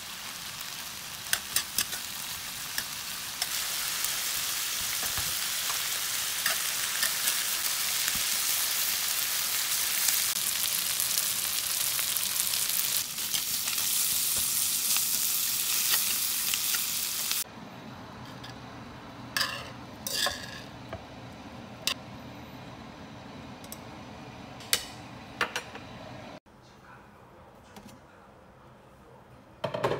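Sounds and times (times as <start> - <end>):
food sizzling in a frying pan: 0.0 - 17.5.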